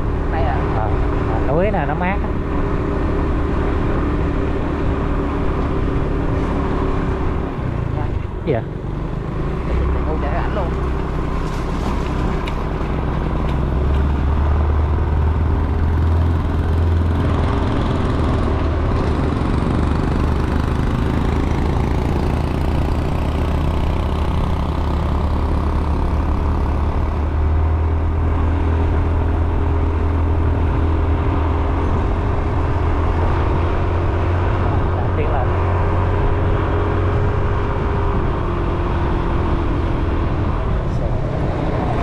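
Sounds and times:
road noise: 0.0 - 42.0
vehicle engine droning: 0.0 - 42.0.

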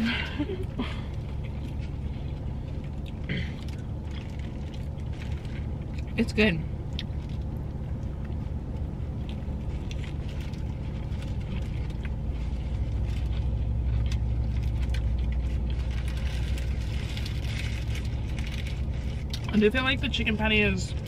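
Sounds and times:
car engine idling: 0.0 - 21.0
chewing and mouth clicks: 1.2 - 6.2, 6.8 - 12.2.

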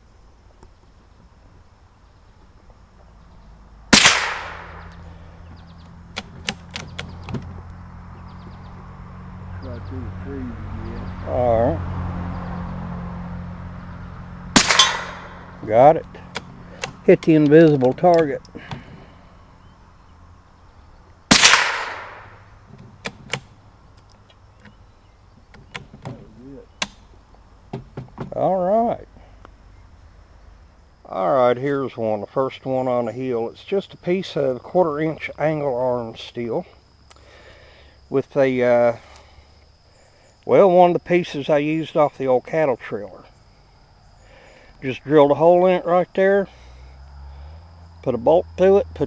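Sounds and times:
rifle shot with echo: 3.9 - 5.0, 14.6 - 15.6, 21.3 - 22.4
sharp clicks: 5.8 - 7.8, 21.3 - 24.8.

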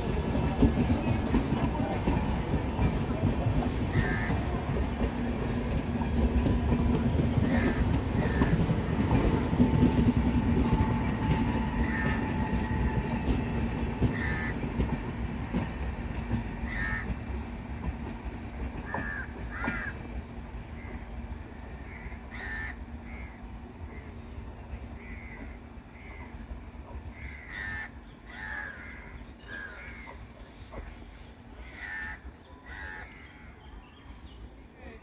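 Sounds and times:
train wheels rumbling and clattering: 0.0 - 33.0
crows cawing: 3.9 - 4.6, 7.4 - 8.8, 11.8 - 12.6, 14.1 - 14.8, 16.6 - 17.2, 18.8 - 20.0, 21.8 - 23.4, 25.0 - 26.2, 27.2 - 30.2, 31.6 - 33.6.

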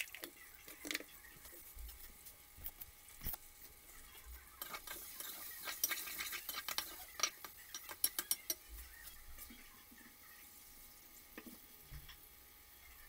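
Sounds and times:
metal spoon clinking in pot: 4.6 - 8.6.

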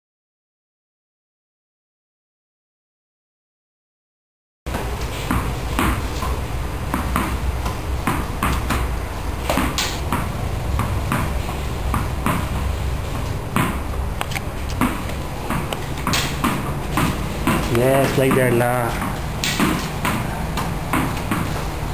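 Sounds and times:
racket hitting tennis ball: 4.7 - 21.7
ball bouncing off wall and floor: 4.7 - 21.8.

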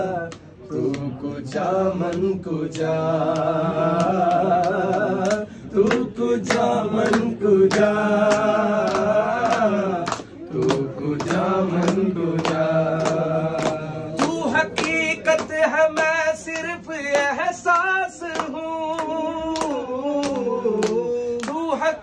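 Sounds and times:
group clapping hands: 0.0 - 22.0
man singing devotional melody: 0.0 - 22.0.

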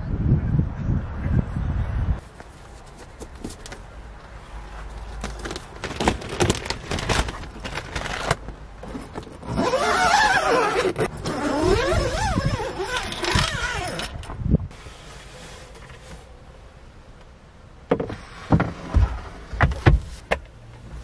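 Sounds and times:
plastic sheet rustling and clicking: 5.0 - 8.6
plastic sheet crackling: 5.3 - 8.4.

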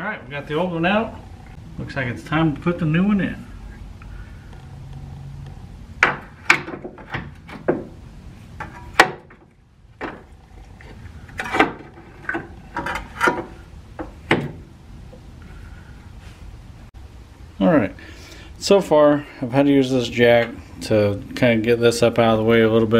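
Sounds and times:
metal part knocking and clanking: 11.3 - 14.6.

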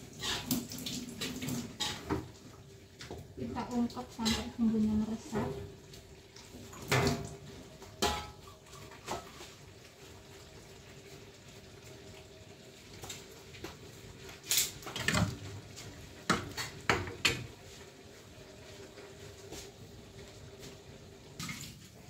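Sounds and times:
metal pots and pans clanking: 1.6 - 2.3, 4.2 - 4.6, 6.8 - 7.4, 8.0 - 9.4, 14.5 - 15.4.

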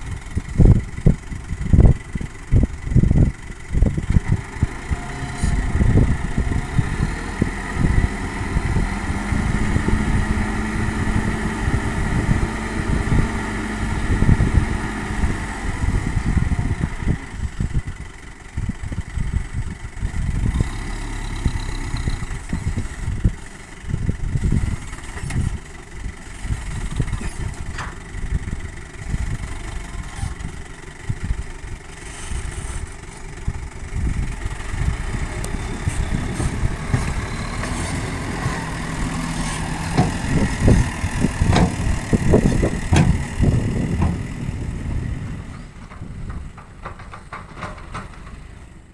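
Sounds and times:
diesel truck engine rumbling: 0.0 - 48.9
soil unloading from tipper: 35.1 - 43.4.

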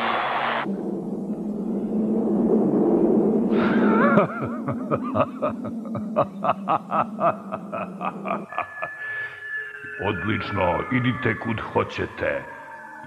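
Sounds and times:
low rumble and hum: 0.6 - 9.1
character laughing: 3.6 - 9.4.

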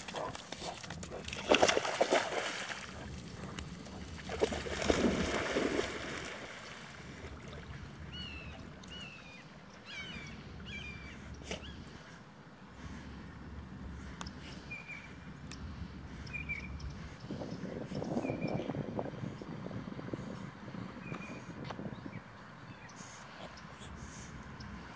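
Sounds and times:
puppy splashing in water: 0.0 - 8.6.

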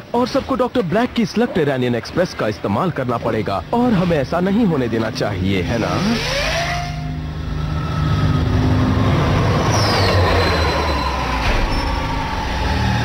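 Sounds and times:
cartoon vehicle rumble and whine: 3.7 - 13.0
short falling whistle: 9.6 - 12.4.

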